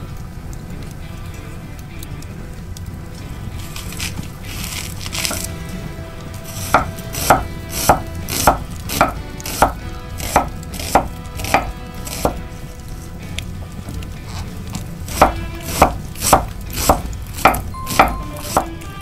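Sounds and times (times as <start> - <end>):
knife slicing onion: 6.5 - 12.4, 15.1 - 18.8.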